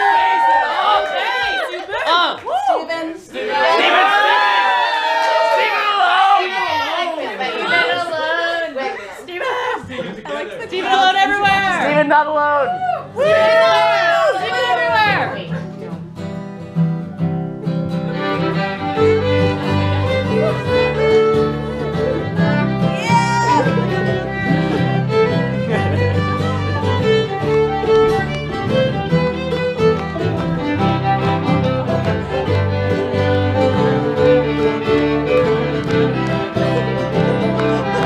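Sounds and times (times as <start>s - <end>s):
acoustic guitars: 9.4s - 38.0s
fiddle: 12.7s - 38.0s
banjo: 14.7s - 38.0s.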